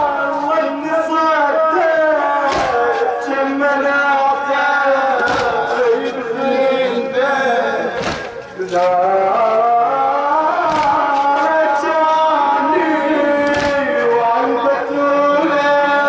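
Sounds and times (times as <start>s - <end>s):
man chanting into a microphone: 0.0s - 16.0s
chest slaps: 8.0s - 8.5s, 10.7s - 11.3s, 13.5s - 13.8s.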